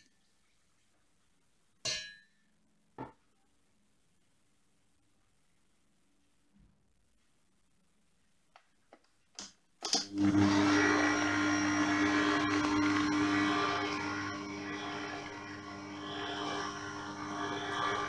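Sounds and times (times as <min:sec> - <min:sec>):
stand mixer motor humming: 0:10.1 - 0:18.0.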